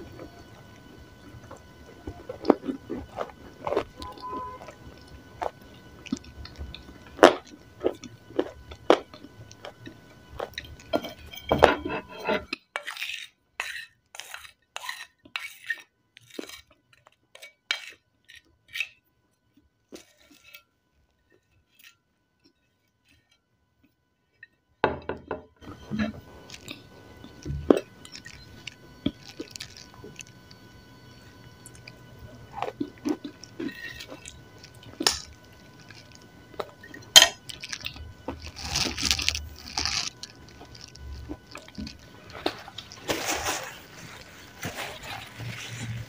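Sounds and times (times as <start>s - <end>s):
person chewing and crunching clay: 0.0s - 11.7s, 12.4s - 23.4s, 25.6s - 46.0s
spoon scraping ceramic plate: 10.9s - 15.8s.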